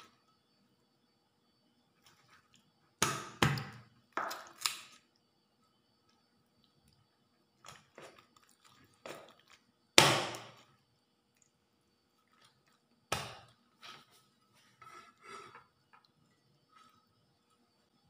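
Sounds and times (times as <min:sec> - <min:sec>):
cleaver chopping bone: 0:10.0 - 0:10.5.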